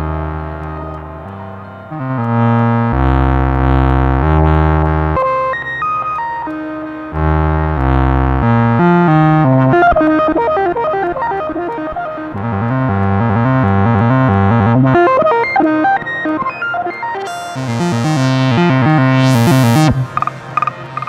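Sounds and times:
sequenced synth bass line: 0.0 - 21.0
quick pitched synth notes: 15.0 - 21.0.

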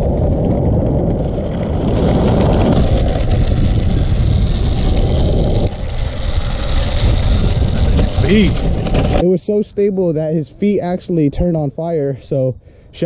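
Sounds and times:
skateboard wheels rolling on asphalt: 0.0 - 9.3.

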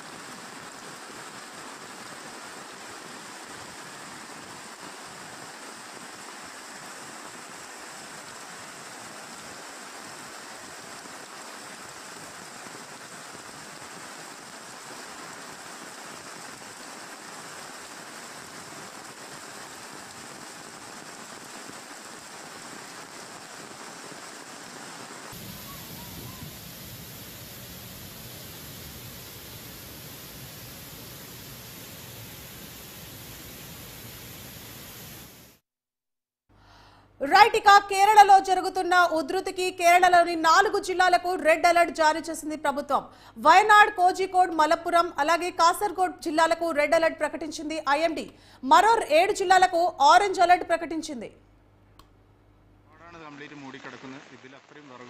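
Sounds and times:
flowing floodwater: 0.0 - 35.4
heavy rain: 0.0 - 35.6
swollen waterfall rushing: 25.3 - 30.7.

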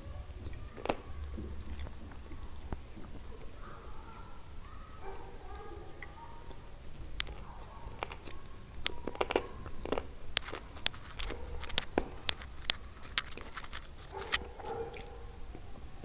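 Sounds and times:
close chewing with mouth clicks: 0.0 - 16.0.

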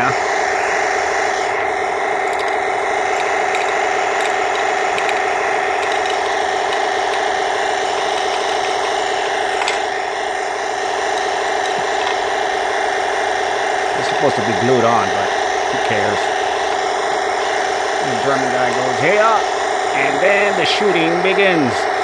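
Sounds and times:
simulated tank engine drone: 0.0 - 22.0
pellets clicking: 2.2 - 10.1, 10.8 - 12.6.

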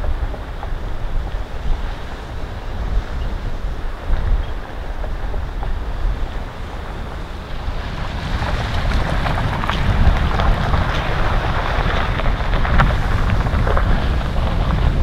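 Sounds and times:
wind buffeting microphone: 0.0 - 15.0
tyres crackling on stones: 6.7 - 15.0.

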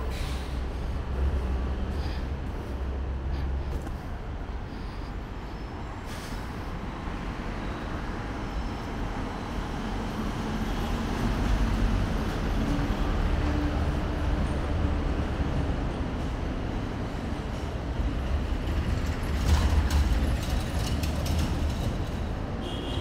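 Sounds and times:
faint engine hum: 0.0 - 6.6
heavy vehicle rumble: 0.0 - 23.0
street traffic: 0.0 - 23.0.

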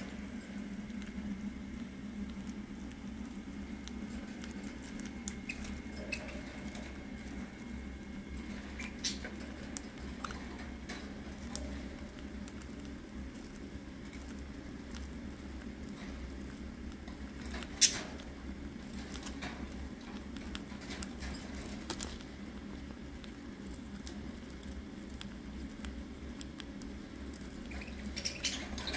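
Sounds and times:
birds pecking at food: 0.0 - 28.9
low steady hum: 0.0 - 28.9.

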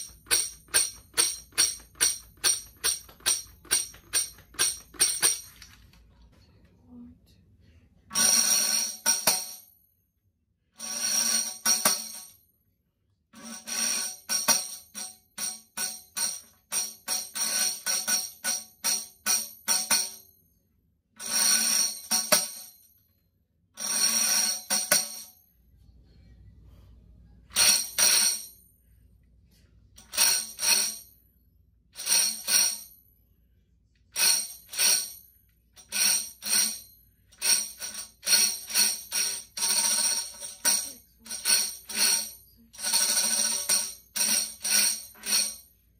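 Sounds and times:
tambourine rolls and strikes: 0.0 - 5.5, 8.1 - 9.8, 10.8 - 12.4, 13.4 - 20.4, 21.2 - 22.9, 23.8 - 25.4, 27.5 - 28.7, 30.0 - 31.2, 32.0 - 33.0, 34.2 - 45.8.

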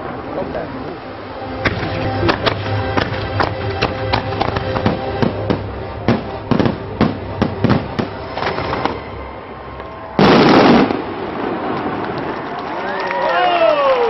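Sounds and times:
fireworks bangs and pops: 1.6 - 9.0, 10.2 - 12.7.

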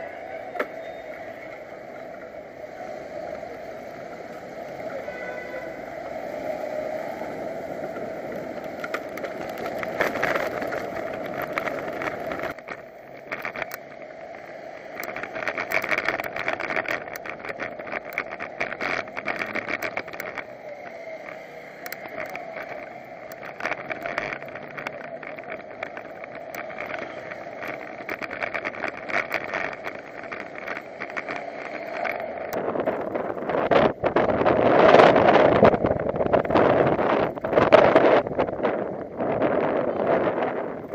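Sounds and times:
bicycle rattling clicks and knocks: 0.0 - 40.9
road and wind noise: 0.0 - 40.9.

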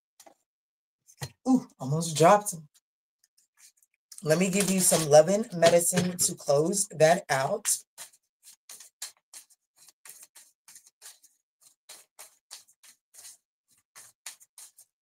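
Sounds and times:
cards being shuffled: 4.4 - 5.8, 8.0 - 14.9.

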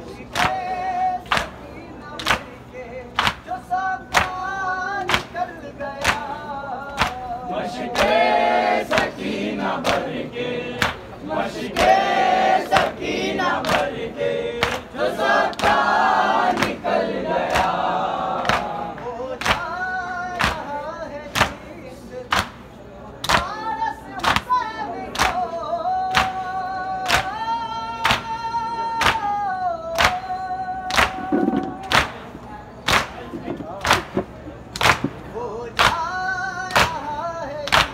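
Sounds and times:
men chanting in chorus: 0.0 - 22.5
hands slapping chests: 30.9 - 32.3, 32.9 - 36.0.

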